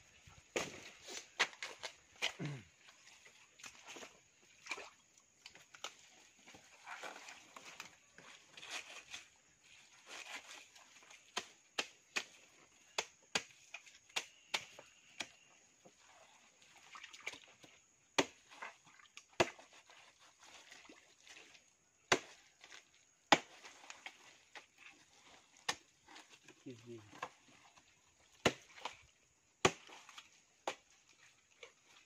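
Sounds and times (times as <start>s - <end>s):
machete chopping plant stump: 0.5s - 2.6s, 11.3s - 15.5s, 18.2s - 18.5s, 19.4s - 19.7s, 22.1s - 22.4s, 23.3s - 23.7s, 28.4s - 28.9s, 29.6s - 29.9s.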